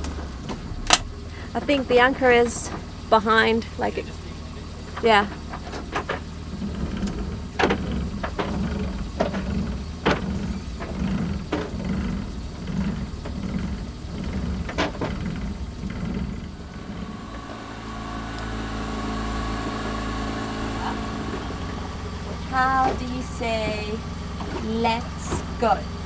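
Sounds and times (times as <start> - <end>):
boat engine throbbing: 0.0 - 26.0.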